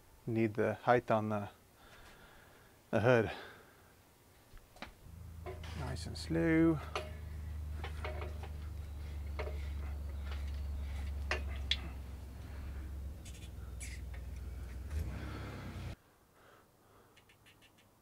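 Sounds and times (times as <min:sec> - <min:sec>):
steady low hum: 0:05.0 - 0:16.0
crane chain squeaking and clicking: 0:05.4 - 0:14.7.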